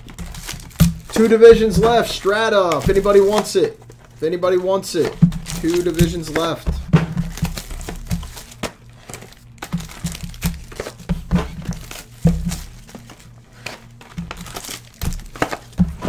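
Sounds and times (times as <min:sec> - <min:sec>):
plastic and foil packs crinkling: 0:00.0 - 0:16.0.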